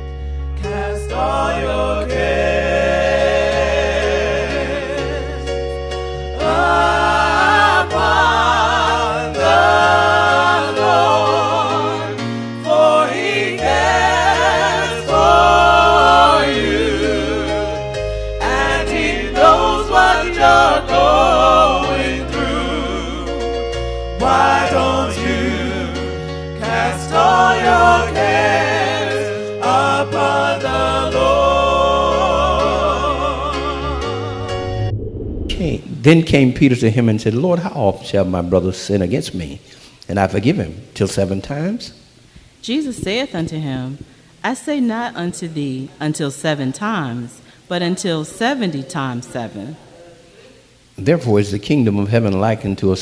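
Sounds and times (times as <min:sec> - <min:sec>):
gospel singing with vibrato: 0:00.0 - 0:36.4
held low bass notes: 0:34.0 - 0:36.3.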